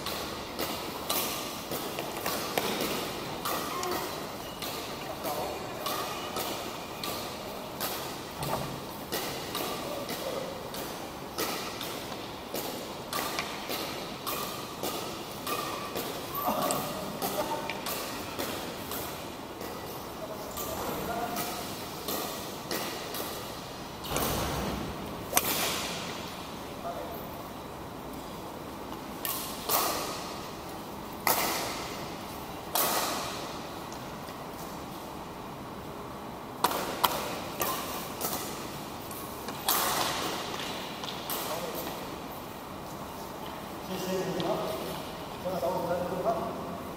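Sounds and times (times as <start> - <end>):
badminton rackets hitting shuttlecocks: 0.0 - 24.5, 25.2 - 26.4, 28.9 - 34.1, 36.6 - 42.0.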